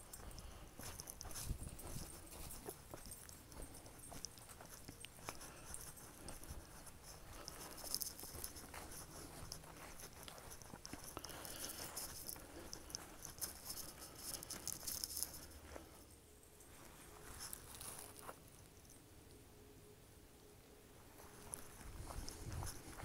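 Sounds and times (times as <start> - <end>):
footsteps crunching dry leaves: 0.2 - 15.9, 21.2 - 23.0.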